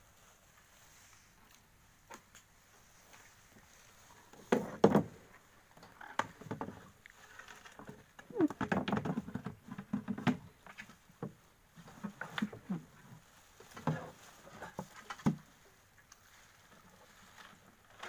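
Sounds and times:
knocks inside a wooden boat: 4.4s - 5.3s, 7.9s - 10.5s.

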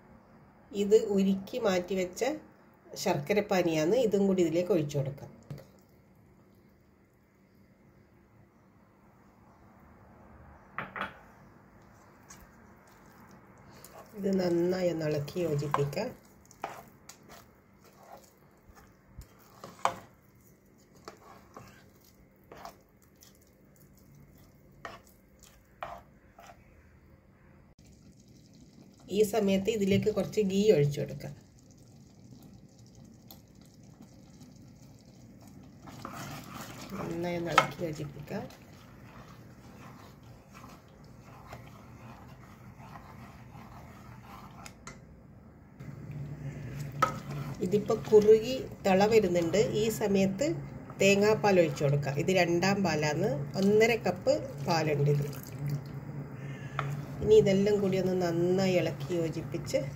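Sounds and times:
spoon stirring thick paste: 11.8s - 26.9s, 31.2s - 45.0s, 45.8s - 55.8s, 56.4s - 59.9s.

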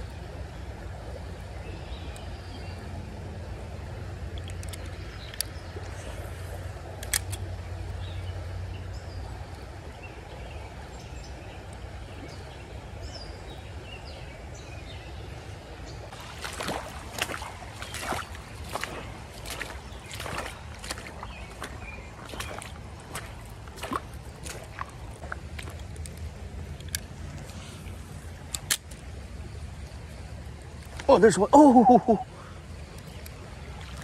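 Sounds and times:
footsteps crunching on wet stones: 16.1s - 26.3s.

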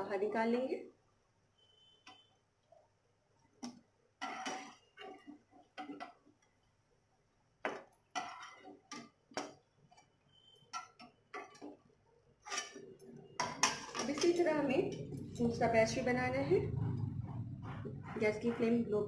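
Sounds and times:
skimmer scraping against a wok: 4.2s - 6.2s, 8.1s - 9.1s, 9.9s - 15.7s.

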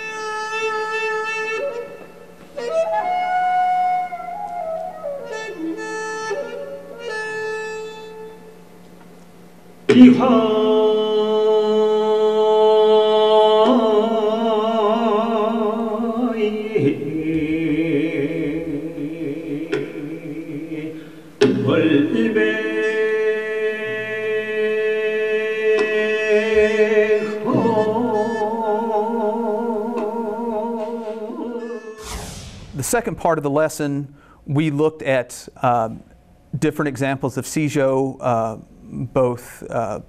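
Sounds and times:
bamboo flute: 0.0s - 8.5s, 26.6s - 32.2s
man singing slow vibrato notes: 9.9s - 32.1s.

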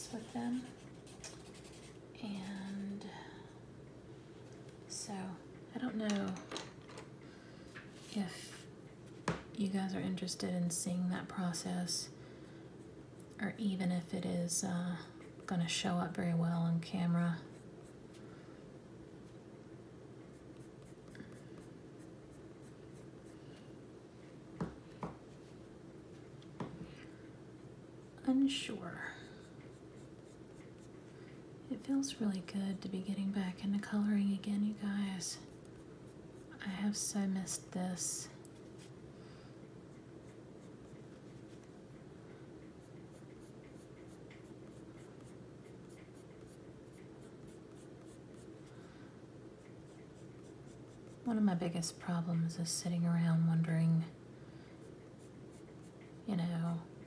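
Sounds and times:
pencil scratching on paper: 0.0s - 2.0s, 42.8s - 48.5s
faint steady hum: 0.0s - 57.0s
sharp pencil ticks: 42.7s - 48.5s.

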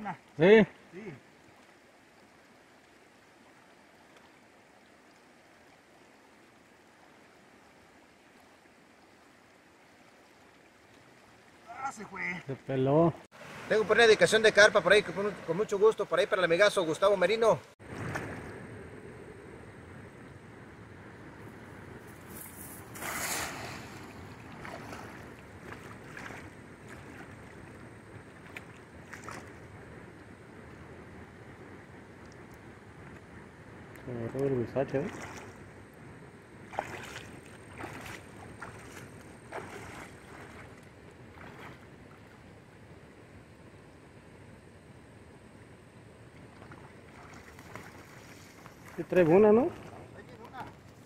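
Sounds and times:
river current flowing: 0.0s - 51.0s
small splashes and ticks: 1.2s - 12.7s, 22.1s - 30.9s, 31.9s - 36.0s, 36.6s - 42.6s, 46.3s - 51.0s
cast net splashing into water: 17.8s - 18.6s, 22.8s - 27.5s, 35.0s - 35.6s, 36.7s - 40.8s, 46.5s - 49.0s.

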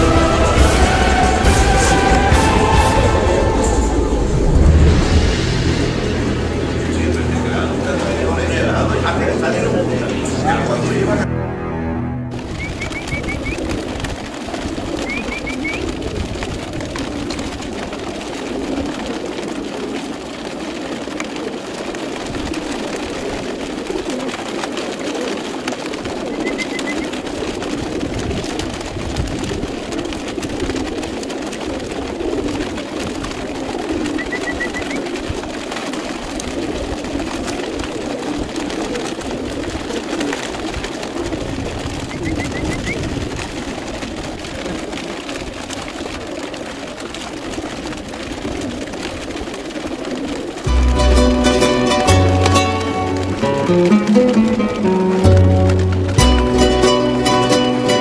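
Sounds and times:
pigeons cooing: 12.4s - 58.0s.

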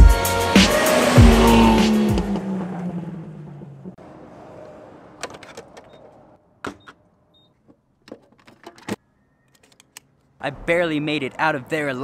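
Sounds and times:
vehicle driving on dirt road: 0.7s - 6.4s.

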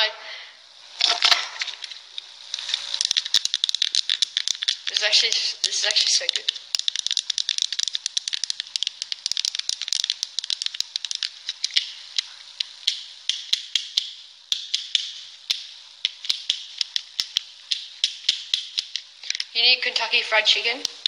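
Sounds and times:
fidget cube clicking: 1.8s - 21.0s.

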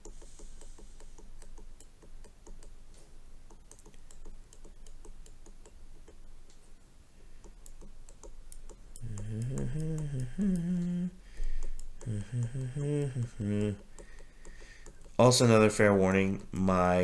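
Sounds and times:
stylus tapping on glass screen: 0.0s - 2.8s, 3.5s - 6.2s, 7.4s - 15.2s.

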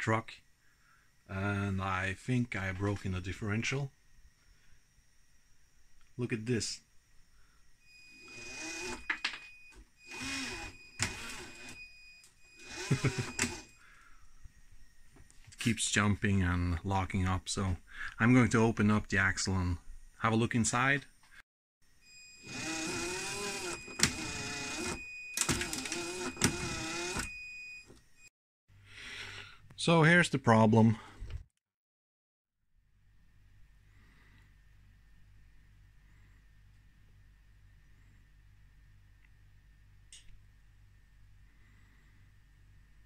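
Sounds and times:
electric motor and gears whining: 7.9s - 9.4s, 10.0s - 13.8s, 22.2s - 27.4s.

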